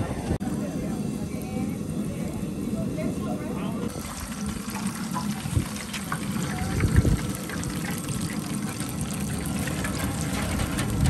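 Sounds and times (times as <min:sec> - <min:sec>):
oil sizzling and crackling: 0:03.5 - 0:11.0.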